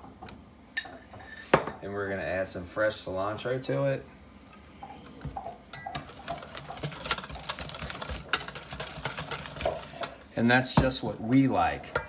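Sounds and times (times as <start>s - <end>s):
whisk scraping metal bowl: 5.7s - 12.0s.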